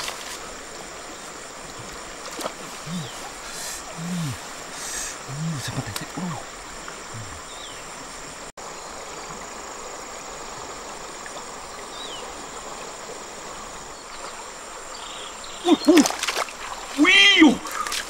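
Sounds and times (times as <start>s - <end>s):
insect buzzing: 0.0s - 10.9s
river water rushing: 0.0s - 18.0s
man exclaiming: 3.9s - 4.4s, 5.3s - 6.4s, 15.6s - 16.1s, 17.0s - 17.6s.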